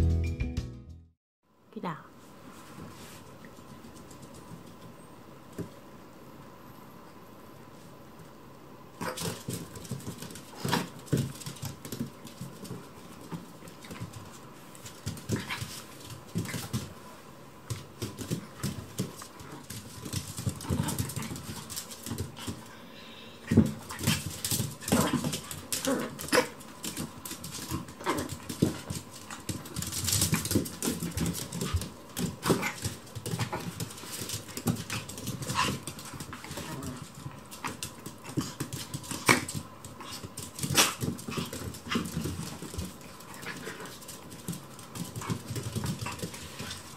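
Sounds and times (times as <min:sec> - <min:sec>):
paws scuffling on wooden floor: 0:09.1 - 0:22.8, 0:23.5 - 0:46.9.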